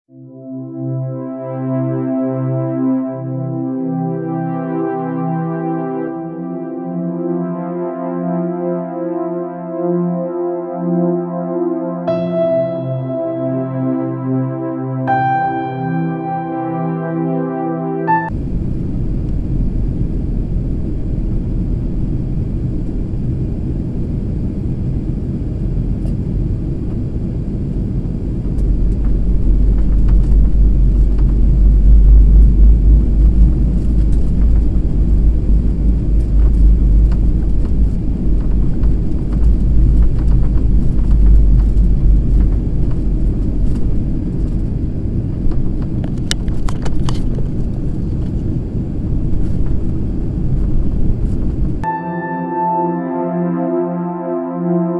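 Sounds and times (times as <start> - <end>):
airliner cabin engine rumble: 18.4 - 51.8.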